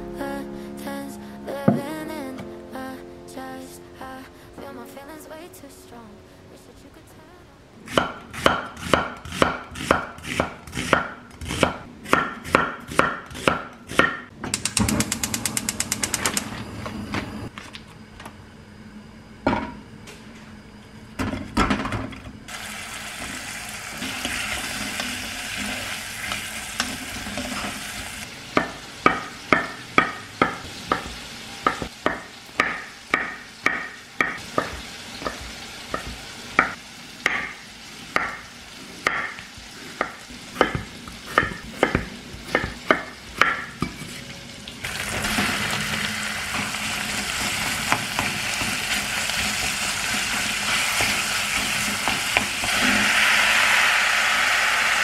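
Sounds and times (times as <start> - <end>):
knife chopping on wooden board: 7.9 - 14.2, 40.0 - 43.7
food sizzling in a pan: 22.5 - 41.4, 44.8 - 55.0.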